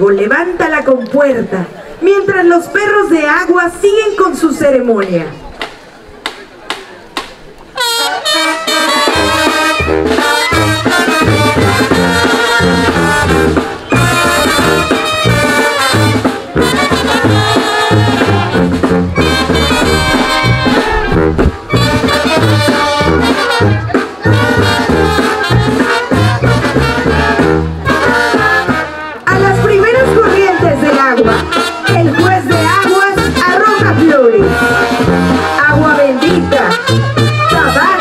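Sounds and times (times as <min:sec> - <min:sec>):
brass band playing: 0:07.7 - 0:38.0.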